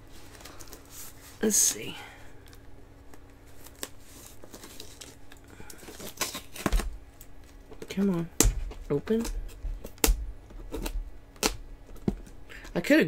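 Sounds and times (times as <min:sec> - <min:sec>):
package being torn by hand: 0:02.5 - 0:07.6.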